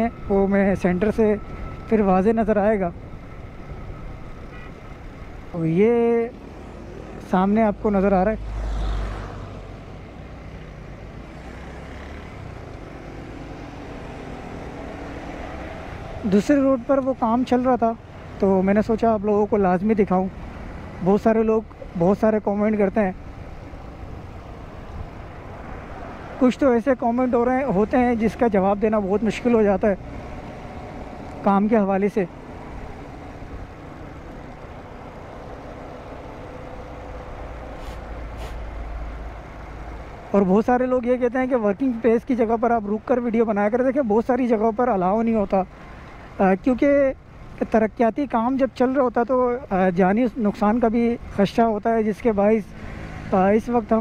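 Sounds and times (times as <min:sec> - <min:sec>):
road traffic rush: 0:00.0 - 0:54.0
short hisses: 0:37.8 - 0:38.7.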